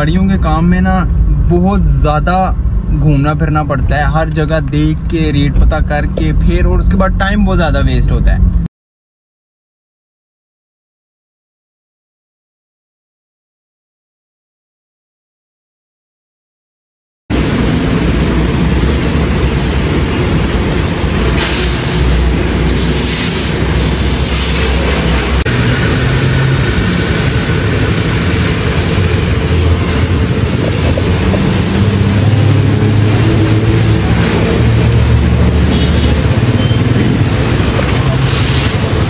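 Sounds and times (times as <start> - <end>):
high-pressure water jet hissing: 17.3 - 39.0.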